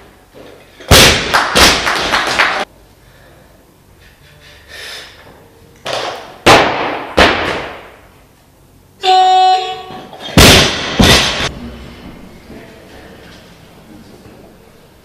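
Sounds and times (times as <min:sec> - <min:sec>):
barbell crashing and bouncing: 0:00.9 - 0:01.8, 0:10.2 - 0:11.5
heavy thuds: 0:10.3 - 0:12.7.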